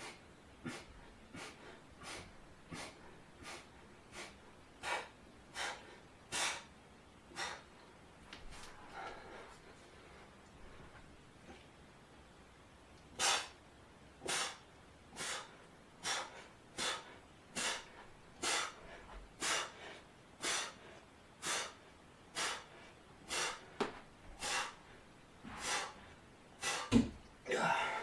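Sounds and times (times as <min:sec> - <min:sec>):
man breathing out sharply: 0:25.5 - 0:28.0.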